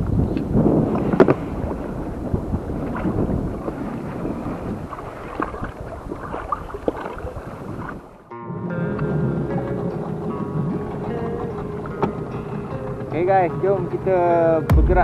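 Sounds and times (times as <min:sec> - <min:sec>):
wind buffeting microphone: 0:00.0 - 0:08.2, 0:09.4 - 0:15.0
water noise: 0:00.0 - 0:08.3, 0:09.0 - 0:15.0
background music: 0:08.3 - 0:15.0.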